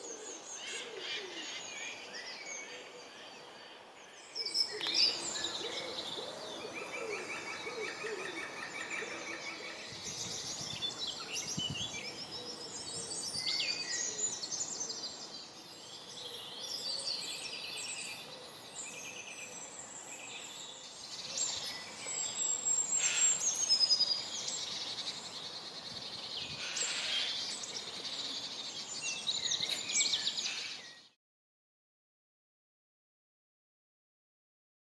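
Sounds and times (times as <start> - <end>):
woodland birds singing: 0.0 - 31.2.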